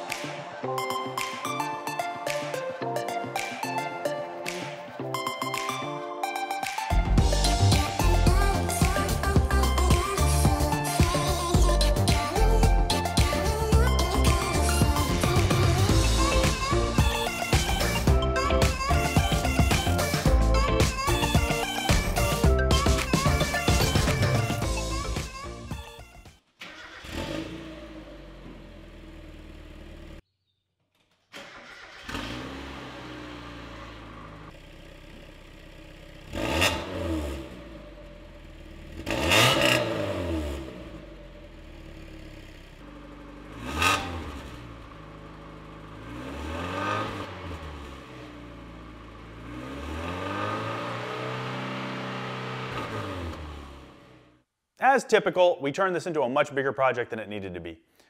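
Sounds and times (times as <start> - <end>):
engine revving: 26.6 - 30.2, 31.4 - 34.7, 36.0 - 54.4
car engine idling: 31.4 - 36.5, 40.8 - 49.4.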